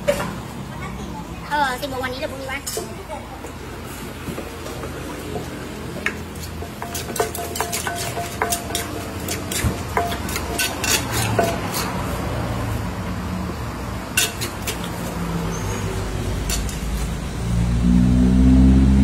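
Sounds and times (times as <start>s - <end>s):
pestle knocking in clay mortar: 6.0s - 12.0s.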